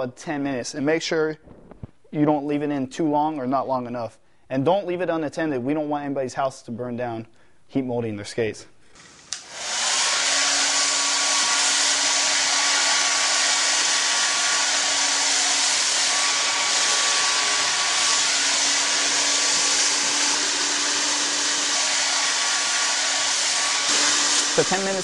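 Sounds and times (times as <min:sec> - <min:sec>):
hair dryer running: 0:09.0 - 0:25.0
hair dryer switch click: 0:09.3 - 0:09.5.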